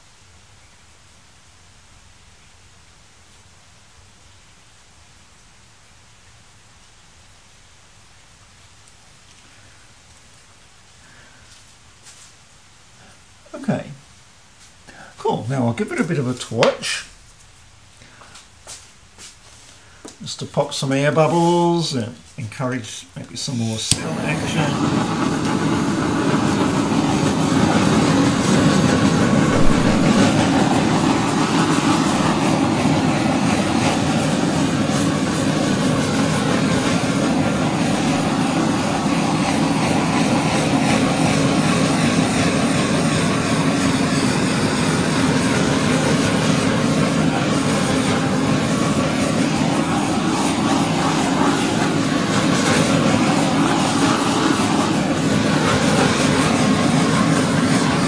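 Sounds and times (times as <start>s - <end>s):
gas torch flame hissing: 23.2s - 58.0s.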